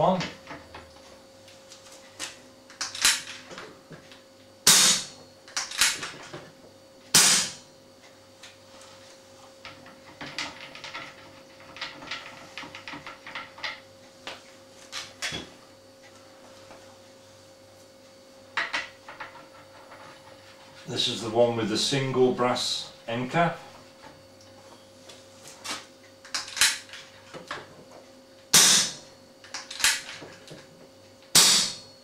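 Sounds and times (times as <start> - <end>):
air rifle shots: 28.6 - 29.0.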